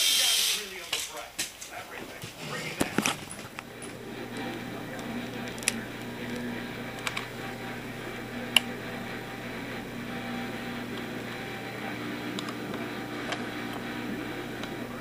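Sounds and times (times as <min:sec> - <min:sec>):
low room hum: 0:00.1 - 0:15.0.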